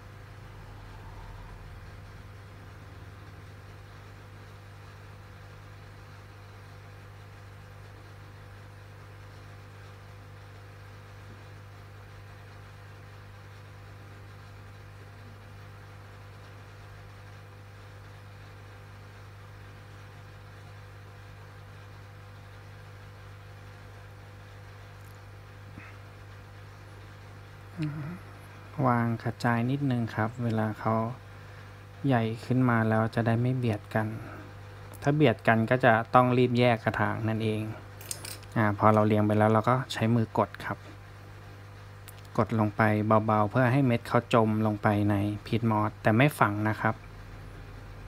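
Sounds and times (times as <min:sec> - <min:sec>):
low electrical hum: 0:00.0 - 0:48.0
faint hiss: 0:27.7 - 0:35.2.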